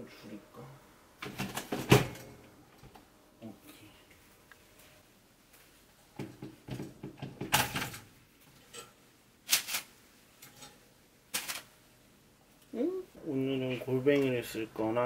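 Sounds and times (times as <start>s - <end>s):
toast knocks and clatters: 6.2s - 9.0s
paper sheet rustling: 9.5s - 9.9s, 11.3s - 11.7s.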